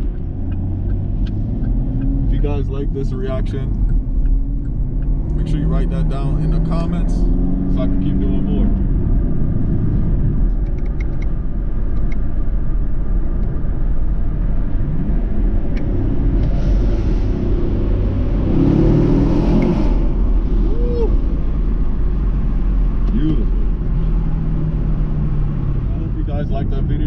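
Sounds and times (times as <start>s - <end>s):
car road and engine rumble: 0.0s - 27.0s
rush of noise: 12.8s - 27.0s.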